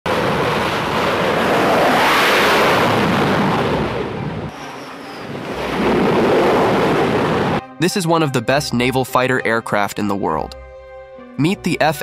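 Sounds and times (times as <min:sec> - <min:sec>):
jet engines at full power: 0:00.1 - 0:07.6.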